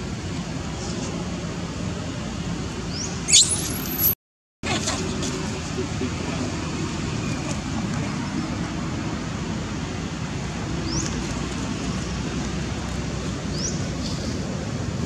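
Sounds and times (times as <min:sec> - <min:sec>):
high rising squeaks: 0:03.3 - 0:04.2.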